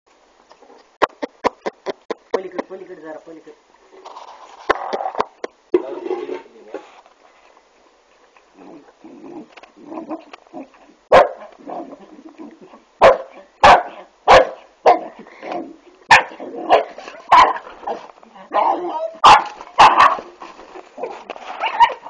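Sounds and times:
small dog barking: 0:11.1 - 0:11.9, 0:13.0 - 0:15.2, 0:16.1 - 0:20.3, 0:21.0 - 0:22.0.

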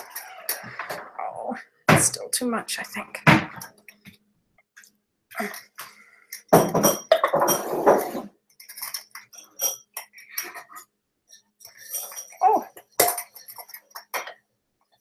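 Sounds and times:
glass jars clinking and scraping: 0:06.3 - 0:14.5.

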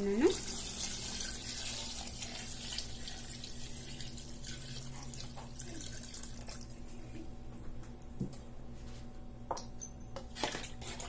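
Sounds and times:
water pouring into a pot: 0:00.2 - 0:06.9.

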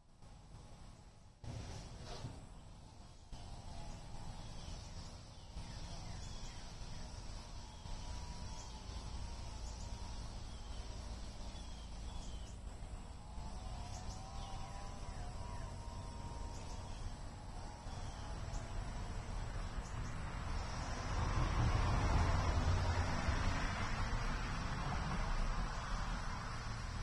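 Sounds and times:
high insect drone: 0:02.5 - 0:27.0.

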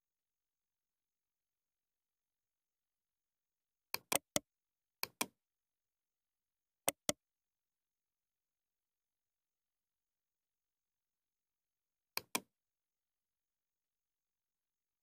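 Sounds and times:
computer mouse clicking: 0:04.0 - 0:04.4, 0:06.9 - 0:07.2, 0:12.2 - 0:12.5.

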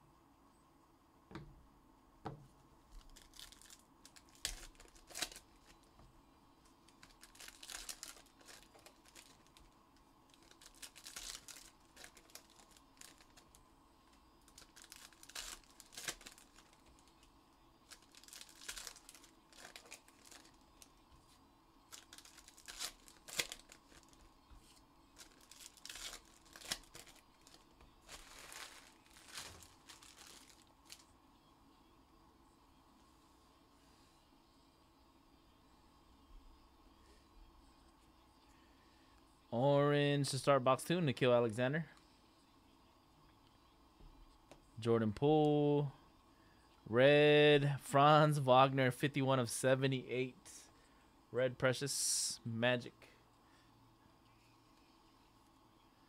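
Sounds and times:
plastic wrappers tearing and crinkling: 0:02.9 - 0:05.9, 0:06.8 - 0:21.0, 0:21.9 - 0:31.1.

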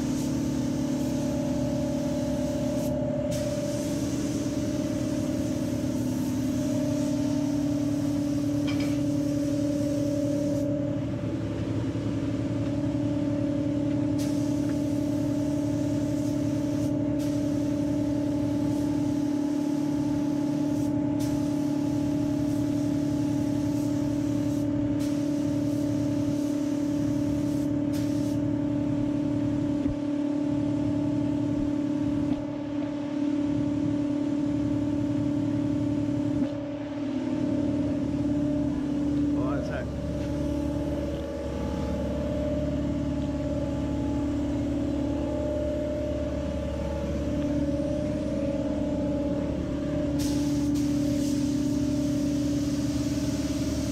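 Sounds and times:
spray gun hissing: 0:00.0 - 0:10.7, 0:14.2 - 0:28.5, 0:50.1 - 0:53.9
machine hum: 0:28.6 - 0:53.9.

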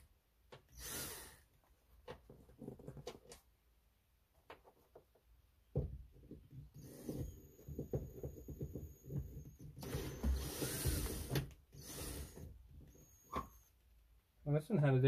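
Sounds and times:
cordless drill motor running: 0:09.8 - 0:13.6.

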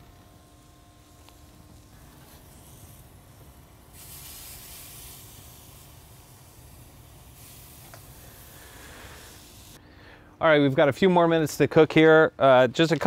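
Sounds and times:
hot gas grill hissing: 0:00.0 - 0:10.6.

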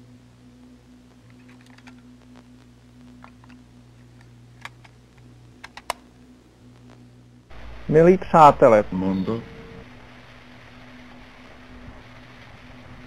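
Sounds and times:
steady low hum: 0:00.0 - 0:13.0
small clicks: 0:01.1 - 0:06.1
tape surface crackle: 0:01.1 - 0:06.1.

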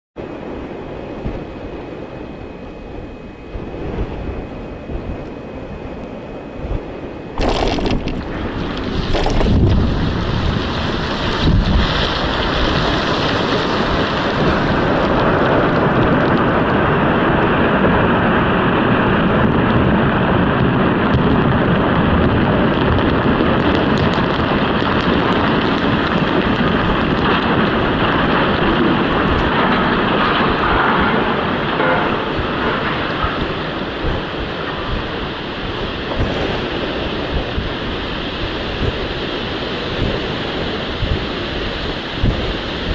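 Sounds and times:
wind noise on microphone: 0:00.2 - 0:42.9
explosive blasts: 0:07.4 - 0:12.0
rumble of falling rock and debris: 0:07.4 - 0:35.3.

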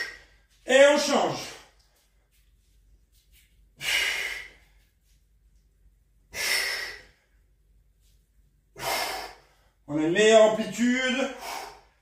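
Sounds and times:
man breathing out hard: 0:03.8 - 0:04.8, 0:06.3 - 0:07.3, 0:08.8 - 0:09.8, 0:11.4 - 0:12.0.

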